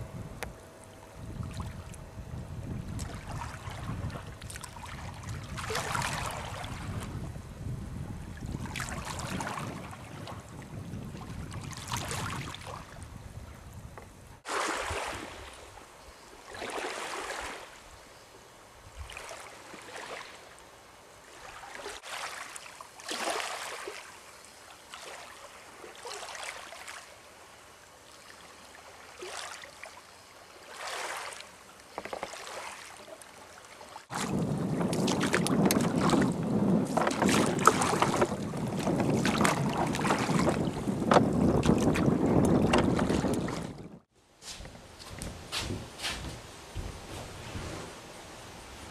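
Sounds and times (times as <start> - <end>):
wind on microphone: 0.0 - 15.8, 18.8 - 19.3, 34.1 - 48.9
water slapping boat hull: 0.4 - 7.3, 8.3 - 13.2, 14.0 - 15.8, 30.6 - 48.9
small waves lapping at shore: 0.8 - 2.0, 2.8 - 7.3, 8.2 - 13.2, 14.4 - 18.0, 18.9 - 44.1.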